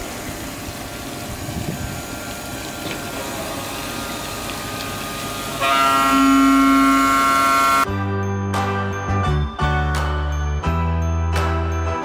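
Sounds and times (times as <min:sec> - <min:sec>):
water spray hissing and splashing: 0:00.0 - 0:07.4.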